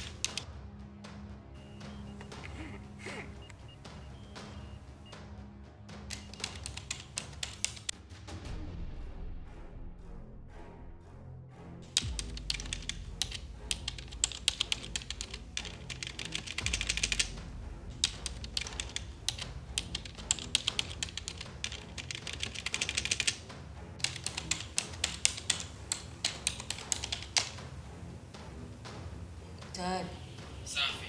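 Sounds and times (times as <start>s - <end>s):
fast keyboard typing: 0.0s - 0.4s, 6.1s - 7.9s, 11.9s - 17.3s, 17.9s - 23.4s, 24.0s - 27.6s
low background music: 0.0s - 31.0s.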